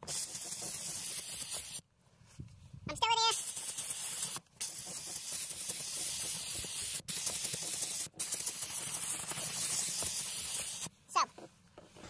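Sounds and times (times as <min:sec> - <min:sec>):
steam cleaner hissing: 0:00.0 - 0:01.8, 0:03.2 - 0:10.9.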